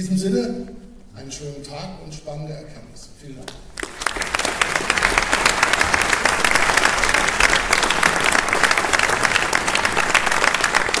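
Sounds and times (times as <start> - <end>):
audience applauding: 3.5 - 11.0.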